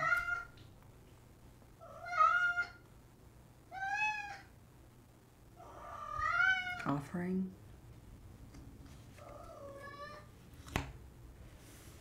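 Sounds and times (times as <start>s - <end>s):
cat meowing: 0.0s - 0.6s, 1.8s - 2.8s, 3.7s - 4.5s, 5.6s - 6.8s, 9.2s - 10.3s.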